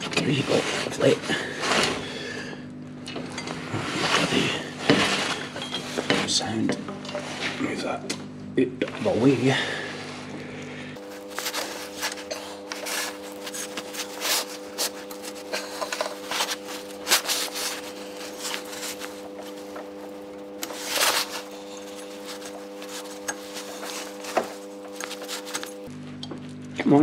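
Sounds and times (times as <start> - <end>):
steady low hum: 0.0 - 27.0
rubber belt rubbing and scraping: 11.0 - 25.9.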